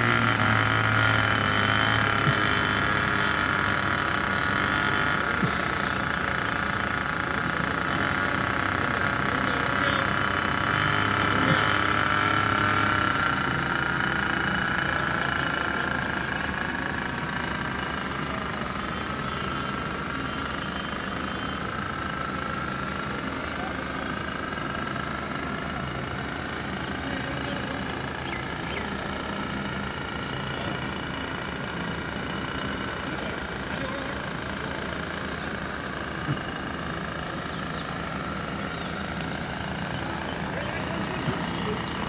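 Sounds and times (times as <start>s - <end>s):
small engine buzzing whine: 0.0s - 42.0s.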